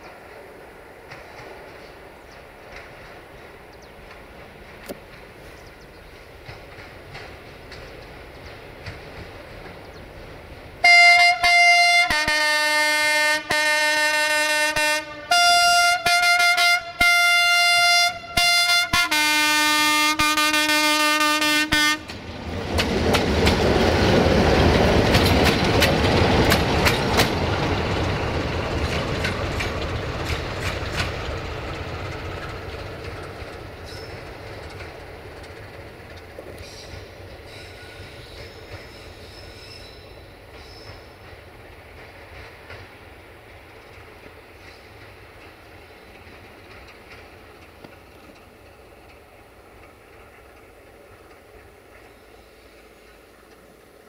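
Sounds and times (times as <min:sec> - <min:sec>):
wheels clattering over rail joints: 0:00.9 - 0:10.8, 0:22.0 - 0:52.2
locomotive horn blasts: 0:10.8 - 0:22.1.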